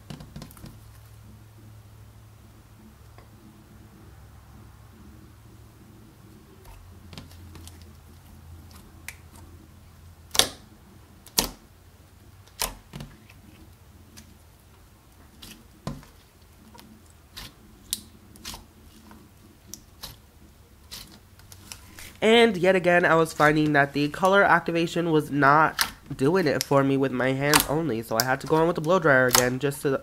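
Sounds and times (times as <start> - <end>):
faint low hum: 0.0 - 30.0
slime popping and clicking: 10.3 - 10.6.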